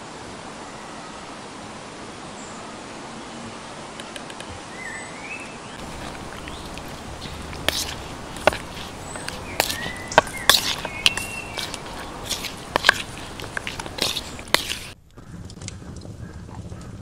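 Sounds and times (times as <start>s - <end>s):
spoon scraping plastic bowl: 5.8s - 15.0s.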